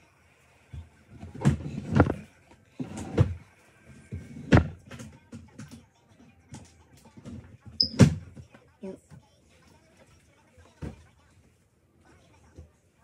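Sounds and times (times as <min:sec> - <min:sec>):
drawers and cupboard doors banging: 0:01.1 - 0:03.4, 0:04.0 - 0:05.7.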